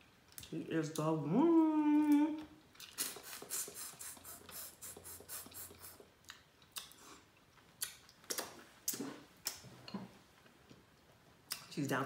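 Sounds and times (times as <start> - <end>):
chewing and lip-smacking: 4.9 - 9.7.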